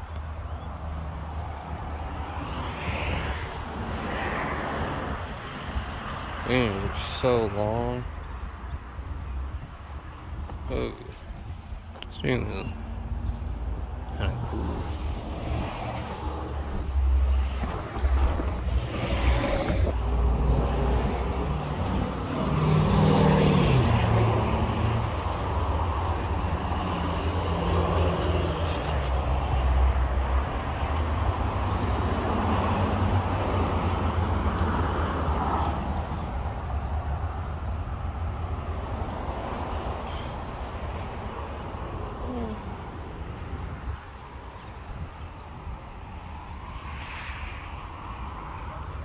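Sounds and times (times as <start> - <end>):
road traffic: 0.0 - 49.0
vehicle passing: 12.4 - 43.6.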